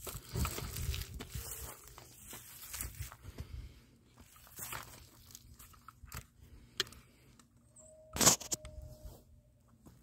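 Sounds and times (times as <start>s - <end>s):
rustles and clicks: 0.0s - 3.4s
footsteps on dry leaves: 0.0s - 5.8s.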